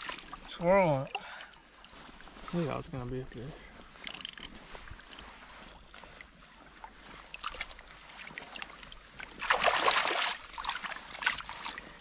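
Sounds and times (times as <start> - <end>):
river water trickling: 0.0 - 12.0
fish splashing in net: 9.2 - 11.9.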